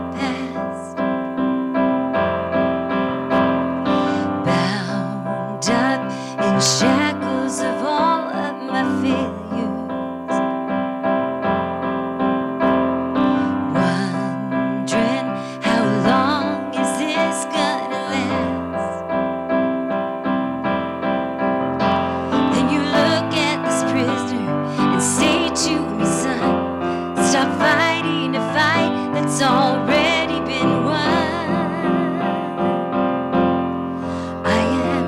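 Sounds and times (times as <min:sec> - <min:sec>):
woman singing with vibrato: 0:00.0 - 0:01.0, 0:04.1 - 0:10.4, 0:13.5 - 0:19.0, 0:22.3 - 0:32.7, 0:34.2 - 0:35.0
piano accompaniment: 0:00.0 - 0:35.0.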